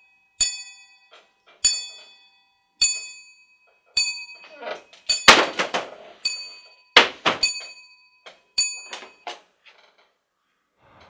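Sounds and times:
telephone bell dings: 0:00.0 - 0:05.4, 0:06.2 - 0:09.5.

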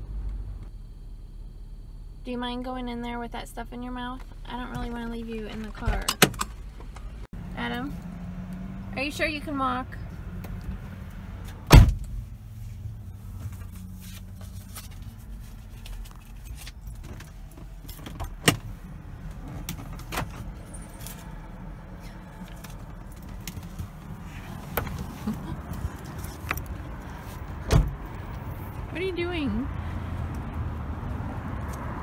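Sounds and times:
car engine idling: 0:00.0 - 0:30.6
car door shutting: 0:11.4 - 0:12.2, 0:22.6 - 0:26.8, 0:27.4 - 0:28.4.

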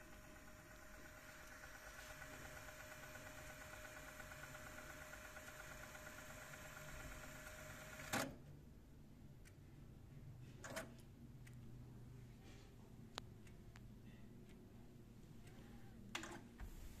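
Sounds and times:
cassette deck whirring: 0:00.0 - 0:08.4.

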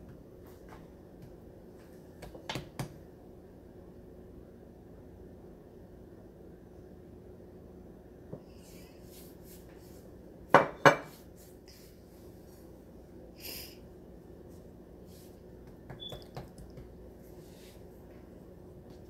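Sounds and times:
hands tapping dough: 0:02.2 - 0:03.0, 0:15.6 - 0:17.0.

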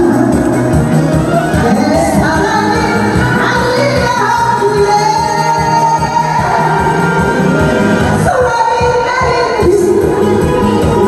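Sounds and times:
woman singing into a microphone: 0:00.0 - 0:00.8, 0:01.5 - 0:07.1, 0:08.2 - 0:11.0
backing track with steady beat: 0:00.0 - 0:11.0.

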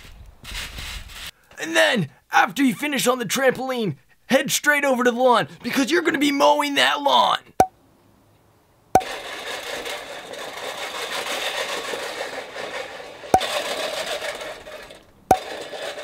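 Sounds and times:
reel mower blades whirring: 0:09.0 - 0:16.0.

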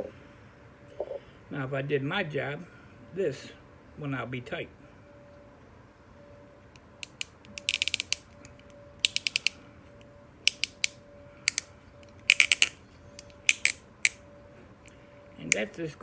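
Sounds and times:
pipe stem clicking: 0:10.5 - 0:14.2.

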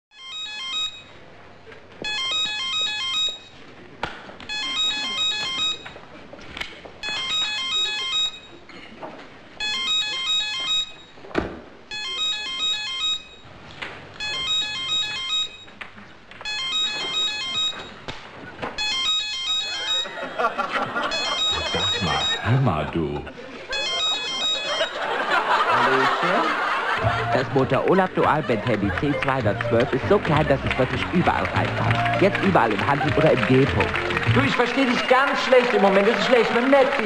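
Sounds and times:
mobile phone beeping ringtone: 0:00.1 - 0:01.2, 0:02.0 - 0:03.6, 0:04.5 - 0:06.0, 0:07.0 - 0:08.6, 0:09.6 - 0:11.2, 0:11.9 - 0:13.5, 0:14.2 - 0:15.8, 0:16.4 - 0:18.0, 0:18.8 - 0:22.6, 0:23.6 - 0:25.9.

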